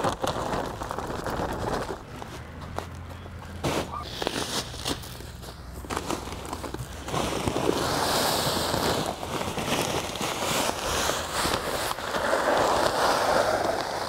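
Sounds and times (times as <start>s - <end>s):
pellets pouring into plastic hopper: 0.0s - 2.0s, 5.9s - 14.0s
bag crackling: 0.0s - 14.0s.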